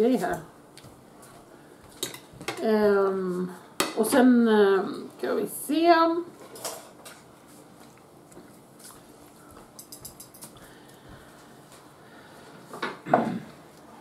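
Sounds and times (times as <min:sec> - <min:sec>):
faint chewing: 0:07.7 - 0:11.3.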